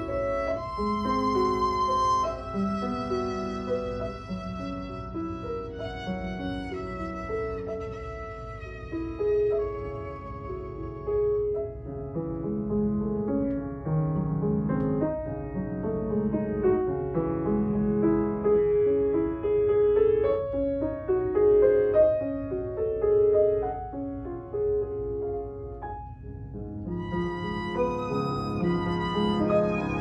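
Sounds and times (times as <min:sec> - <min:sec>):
violin melody: 0:00.0 - 0:12.1, 0:26.9 - 0:30.0
piano accompaniment: 0:00.0 - 0:30.0.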